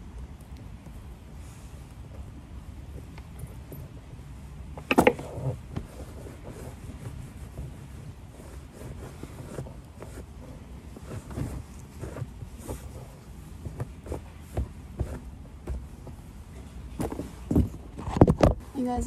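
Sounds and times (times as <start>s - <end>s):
towel rubbing leather boots: 5.2s - 17.6s
light knocks and thumps: 13.6s - 16.3s, 16.9s - 18.6s.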